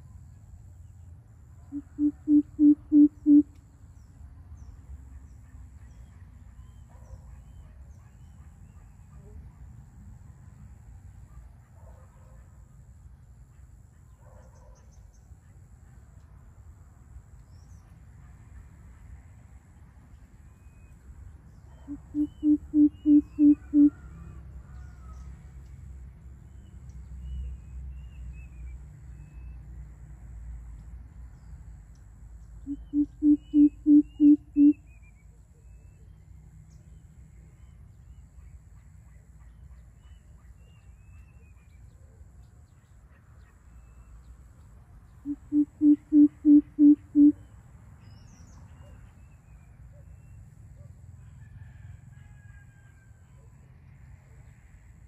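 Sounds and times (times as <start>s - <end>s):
faint high bird chirps: 1.6s - 9.4s, 21.6s - 24.1s, 32.6s - 36.2s, 45.3s - 50.4s
bird giving deep hooting call: 1.7s - 3.5s, 21.9s - 24.1s, 32.7s - 34.8s, 45.3s - 47.4s.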